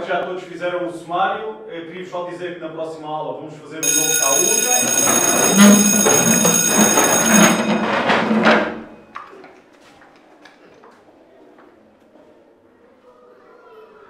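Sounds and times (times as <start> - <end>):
electric school bell ringing: 3.8 - 9.2
students shuffling from desks: 3.8 - 12.2
faint footsteps: 3.8 - 12.3.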